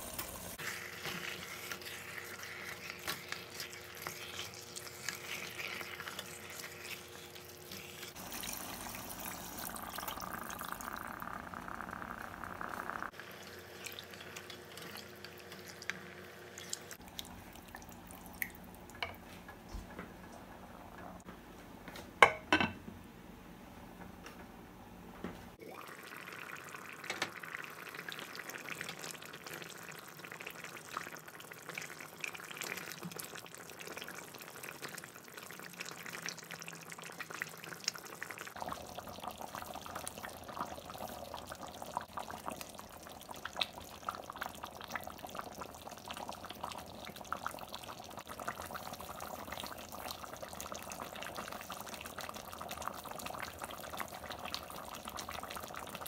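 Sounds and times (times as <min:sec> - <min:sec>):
curry bubbling in a pot: 0:00.4 - 0:19.1, 0:25.6 - 0:56.0
spoon stirring: 0:00.6 - 0:08.6, 0:13.8 - 0:15.9.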